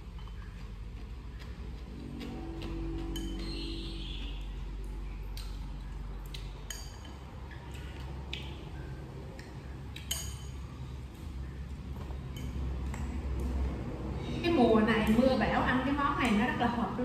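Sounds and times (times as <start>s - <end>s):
chopsticks clinking on bowls: 2.6s - 3.6s, 6.4s - 8.1s, 9.4s - 10.8s.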